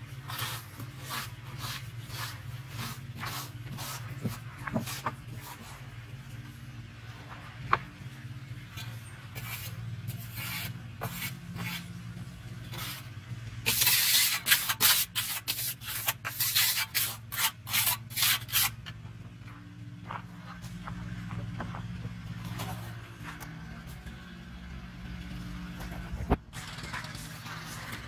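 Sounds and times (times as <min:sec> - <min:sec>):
trowel scraping wet cement: 0:00.0 - 0:06.1, 0:08.6 - 0:12.0, 0:12.6 - 0:19.0.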